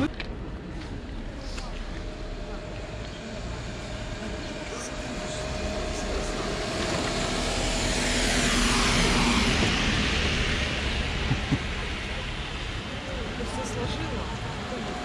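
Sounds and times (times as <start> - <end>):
vehicle passing by: 3.4 - 15.0.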